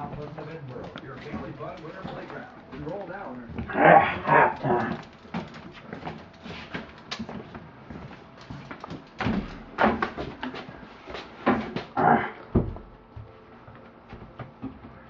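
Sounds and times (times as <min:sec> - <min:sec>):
footsteps: 0:00.0 - 0:15.0
door being opened and bumped: 0:09.2 - 0:10.5
knocks and thumps: 0:11.4 - 0:13.0.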